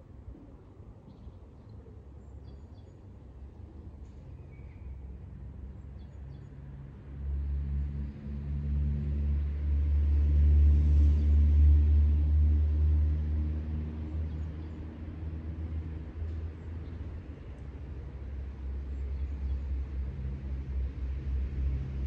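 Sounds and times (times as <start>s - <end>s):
vehicle engine driving past: 7.1s - 16.5s.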